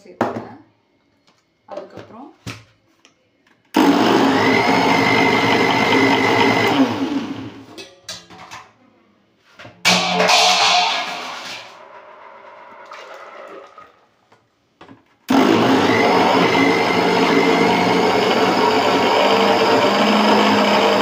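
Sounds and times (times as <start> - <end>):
mixer-grinder motor whining: 3.8 - 7.6, 15.3 - 21.0.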